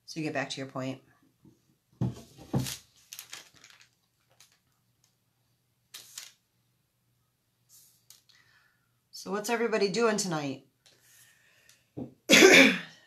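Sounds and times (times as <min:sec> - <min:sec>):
paint palette knocking on table: 0:02.0 - 0:02.7.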